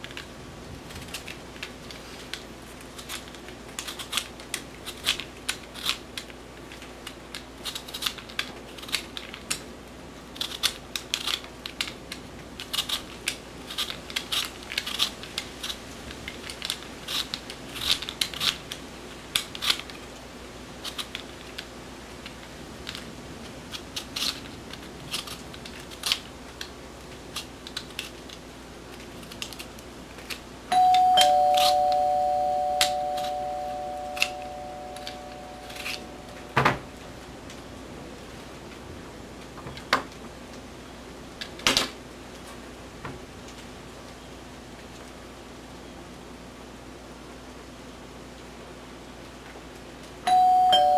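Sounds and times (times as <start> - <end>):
knife scraping potato skin: 12.6 - 15.8, 23.7 - 24.5
two-note doorbell chime: 30.7 - 36.6, 50.3 - 50.9.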